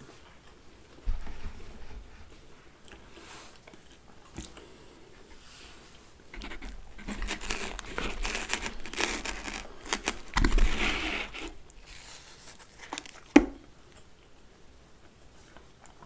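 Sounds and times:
pizza crust tearing and crackling: 6.4s - 13.6s.

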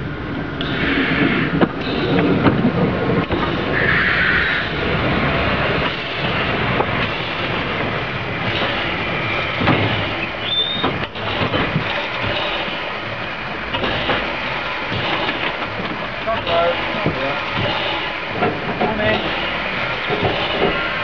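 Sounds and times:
clanking train wheels: 0.0s - 21.0s
steam hissing: 0.6s - 21.0s
high squeal: 9.2s - 11.0s.

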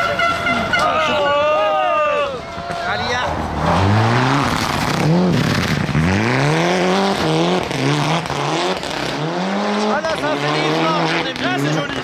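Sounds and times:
rally car engine at full throttle: 2.7s - 12.0s.

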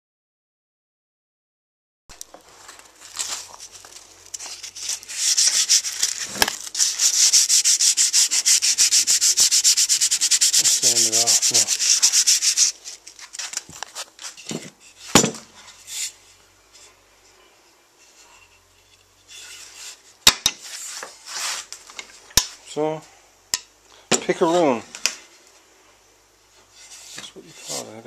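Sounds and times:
hand sanding wood: 4.4s - 14.1s, 26.7s - 28.0s.

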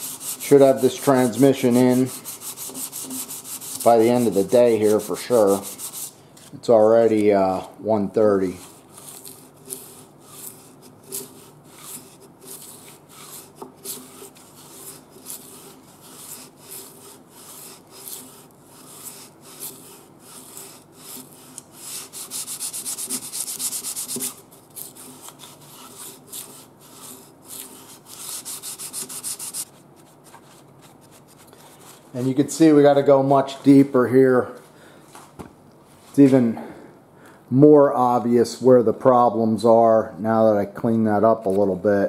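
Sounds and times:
sandpaper scraping metal: 0.0s - 7.6s, 8.2s - 33.9s.

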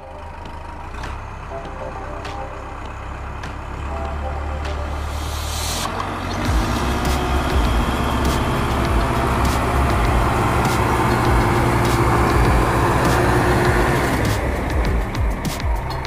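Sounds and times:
model tractor motor running: 5.9s - 16.0s.

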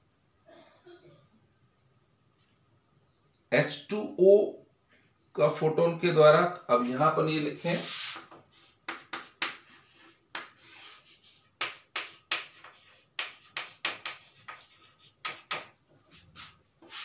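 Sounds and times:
chalk tapping and scraping: 7.3s - 17.0s.

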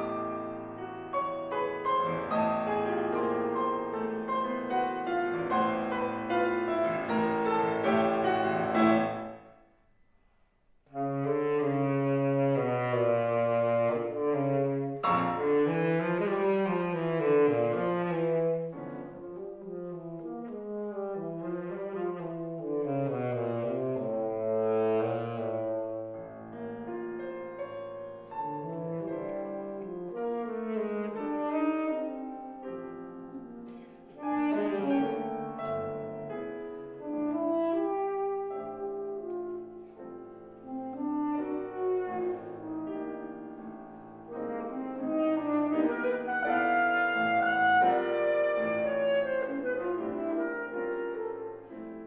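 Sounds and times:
piano: 0.0s - 52.0s
tenor saxophone: 10.9s - 26.2s, 28.2s - 52.0s.

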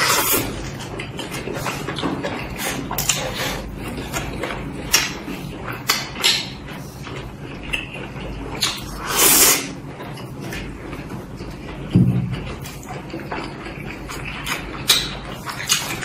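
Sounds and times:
wet chewing and lip-smacking: 0.0s - 16.0s
loud slurp: 8.6s - 9.8s.

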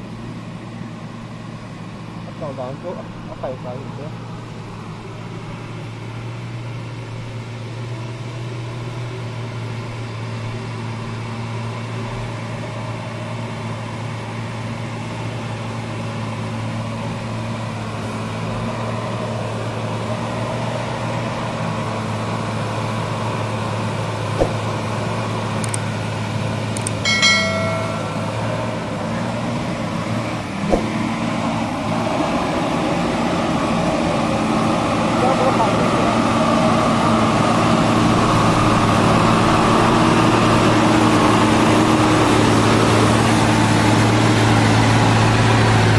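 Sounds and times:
diesel truck engine climbing: 0.0s - 45.9s
sharp clicks: 25.6s - 25.8s, 26.8s - 27.0s
brief high-pitched tone: 27.1s - 28.8s.

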